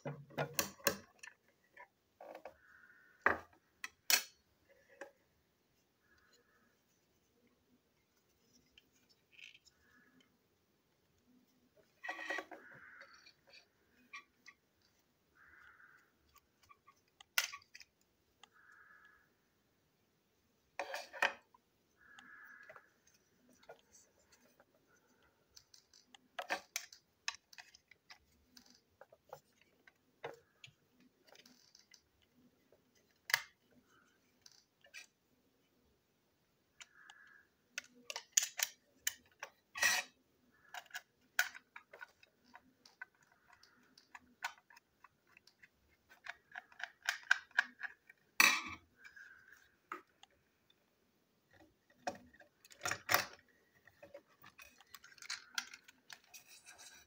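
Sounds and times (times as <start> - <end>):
plastic toy parts clicking: 0.0 - 1.4, 3.2 - 4.4, 12.1 - 19.2, 25.5 - 32.4, 33.0 - 35.2, 36.7 - 50.8, 51.5 - 57.0.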